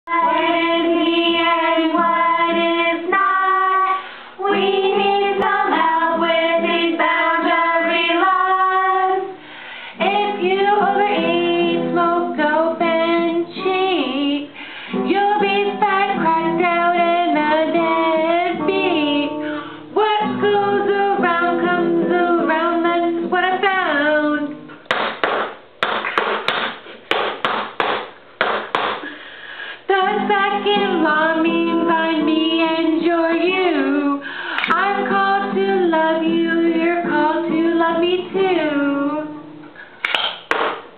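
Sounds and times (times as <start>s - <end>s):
women singing: 0.1s - 24.7s, 29.9s - 39.6s.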